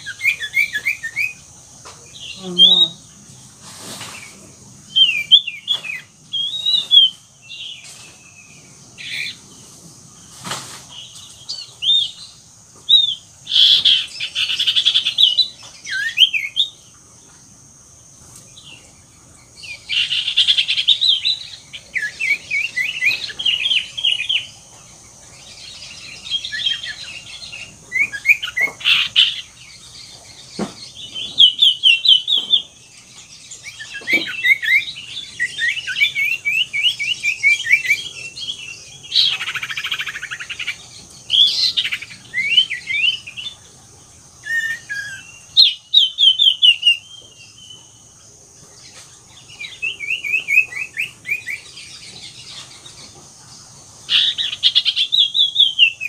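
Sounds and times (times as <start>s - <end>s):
bird singing trilling notes: 0.0s - 3.2s, 4.8s - 9.6s, 18.6s - 43.7s, 44.4s - 48.2s, 49.4s - 53.1s.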